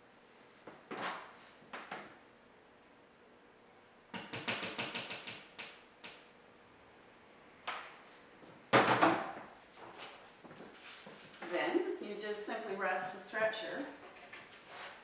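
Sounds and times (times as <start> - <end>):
hammer tapping nail: 4.1 - 5.8.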